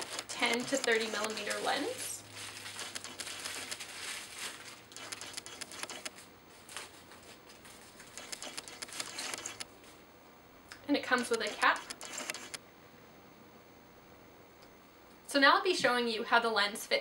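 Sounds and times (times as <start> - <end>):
bubble wrap crinkling: 0.9 - 5.7.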